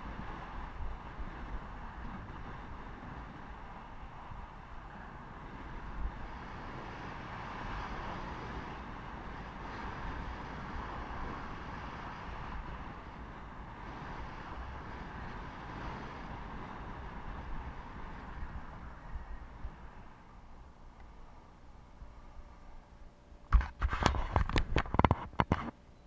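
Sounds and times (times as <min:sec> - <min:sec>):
wind buffeting microphone: 0:00.0 - 0:22.8.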